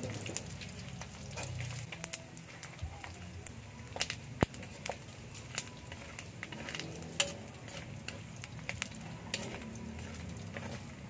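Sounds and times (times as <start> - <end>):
pork sizzling in wok: 0.0 - 11.0
spatula scraping wok: 1.0 - 1.9, 4.0 - 11.0.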